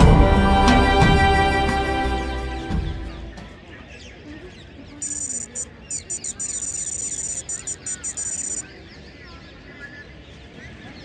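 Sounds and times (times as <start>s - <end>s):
background music: 0.0s - 3.5s
birds chirping: 3.0s - 9.7s.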